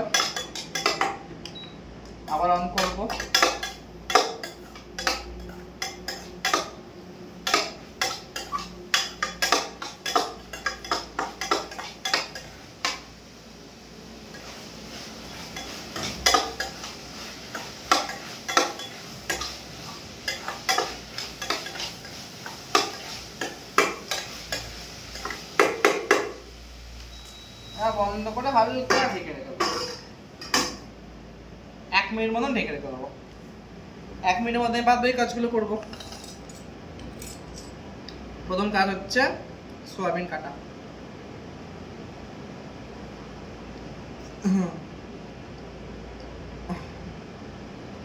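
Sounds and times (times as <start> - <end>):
metal spoon scraping steel pan: 7.4 - 12.5.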